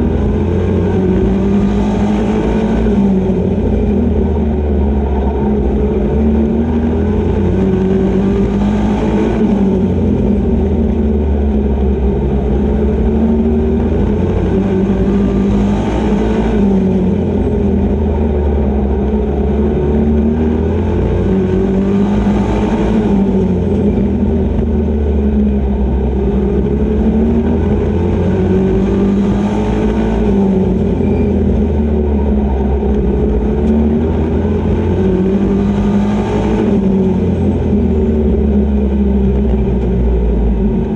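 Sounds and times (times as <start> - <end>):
race truck engine running hard: 0.0 - 40.9.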